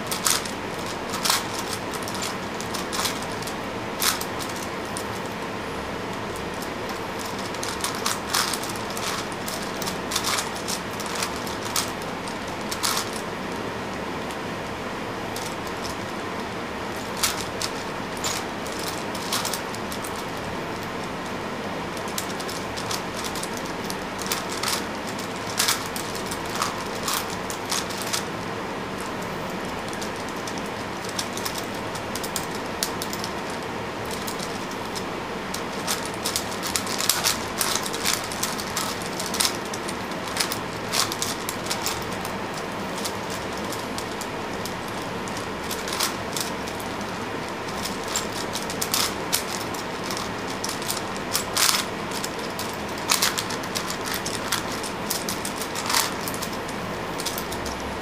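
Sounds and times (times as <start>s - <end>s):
puzzle cube layers clicking: 0.1s - 5.2s, 7.2s - 13.2s, 35.7s - 42.3s, 43.0s - 47.1s.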